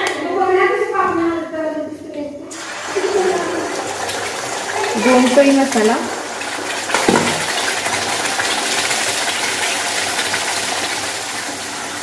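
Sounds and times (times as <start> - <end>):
paste sizzling in hot oil: 2.5 - 12.0
knock: 6.9 - 7.5.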